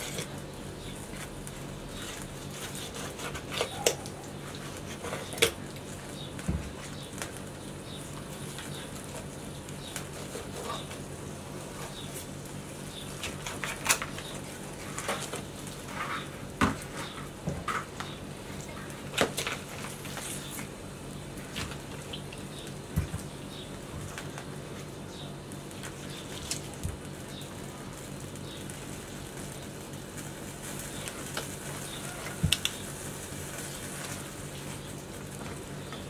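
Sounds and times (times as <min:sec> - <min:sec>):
knife cutting and scraping meat: 0:00.0 - 0:05.6, 0:09.9 - 0:11.0
knife scraping meat off bone: 0:02.5 - 0:04.0.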